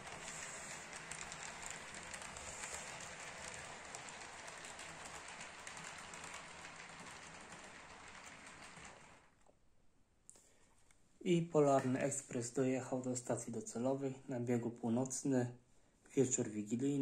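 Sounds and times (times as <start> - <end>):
model train wheels rattling on rail: 0.0 - 9.4.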